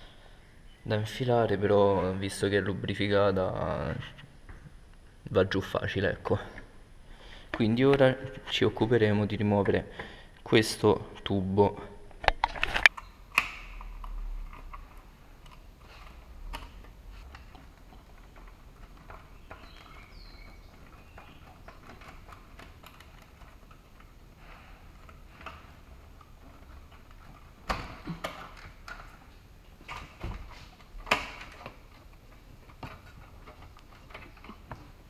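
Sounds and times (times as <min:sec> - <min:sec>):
hands handling hoses and plastic parts: 0:12.2 - 0:35.0.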